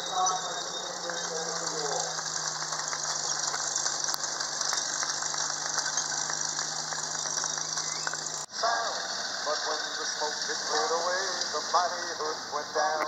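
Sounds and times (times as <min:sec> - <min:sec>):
steel tracks rattling: 0:00.0 - 0:08.5
engine drone: 0:00.0 - 0:13.0.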